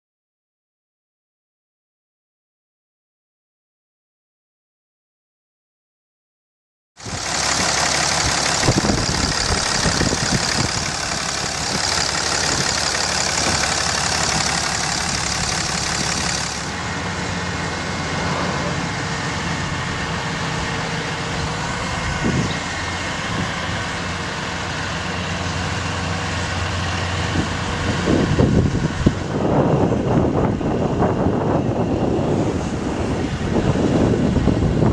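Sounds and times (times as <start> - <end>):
diesel engine idling: 7.0 - 29.8.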